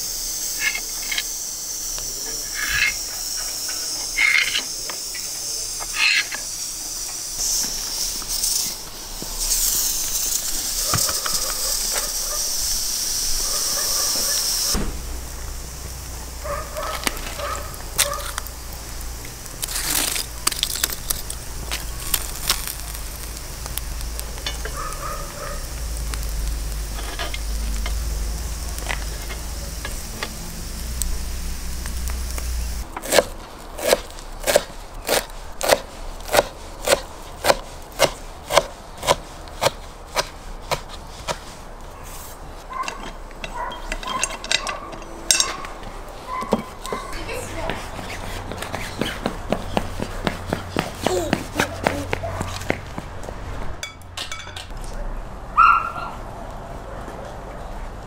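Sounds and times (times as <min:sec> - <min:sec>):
fish sizzling over charcoal: 0:00.0 - 0:52.2
low steady rumble: 0:14.7 - 0:32.9.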